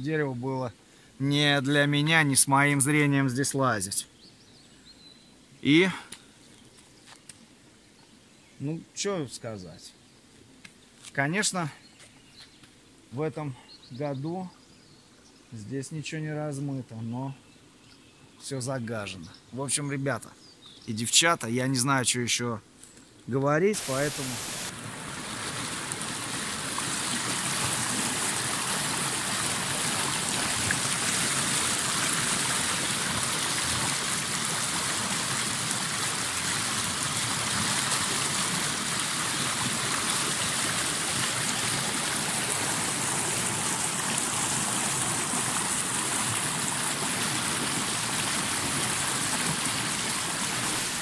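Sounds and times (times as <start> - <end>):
river water rushing through culvert: 23.8 - 51.0.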